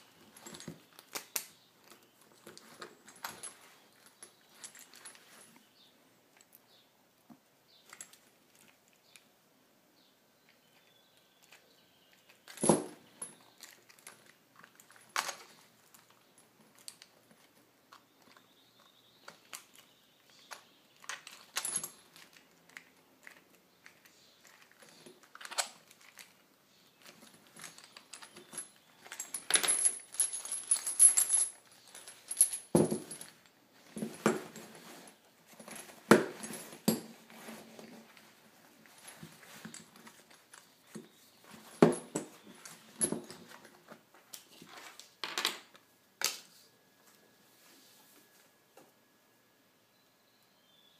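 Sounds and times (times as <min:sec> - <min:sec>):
chain links clinking: 0:00.2 - 0:05.5, 0:12.4 - 0:17.1, 0:20.4 - 0:22.4, 0:27.1 - 0:35.0, 0:41.6 - 0:43.6.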